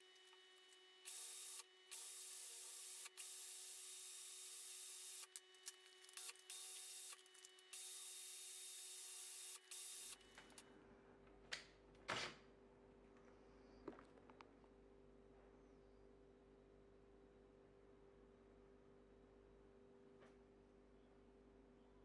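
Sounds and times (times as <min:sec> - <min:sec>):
cordless drill motor whining: 0:00.0 - 0:10.6.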